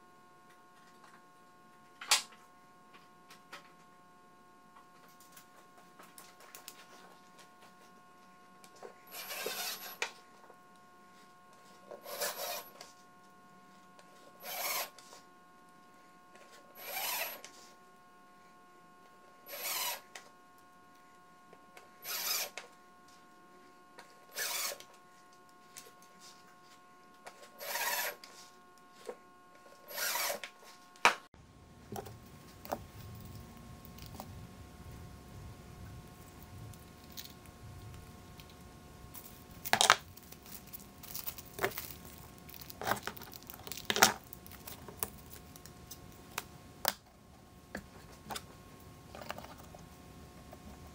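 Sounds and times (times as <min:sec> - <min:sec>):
drill driving screws into wood: 0:09.1 - 0:10.0, 0:12.0 - 0:12.8, 0:14.4 - 0:15.0, 0:16.8 - 0:17.5, 0:19.5 - 0:20.1, 0:22.0 - 0:22.6, 0:24.3 - 0:24.8, 0:27.6 - 0:28.3, 0:29.8 - 0:30.6.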